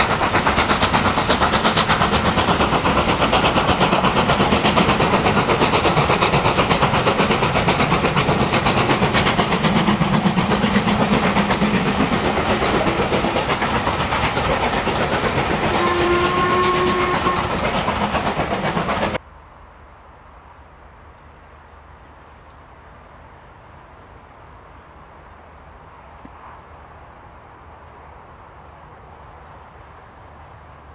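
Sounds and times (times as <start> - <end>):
steam locomotive exhaust beating: 0.0 - 19.2
two-note steam whistle: 15.7 - 17.7
faint outdoor background: 17.8 - 30.9.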